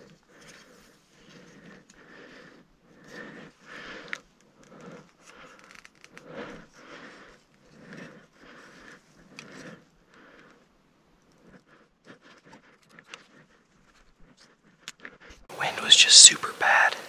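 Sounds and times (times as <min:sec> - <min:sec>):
person breathing heavily: 0:00.4 - 0:10.8.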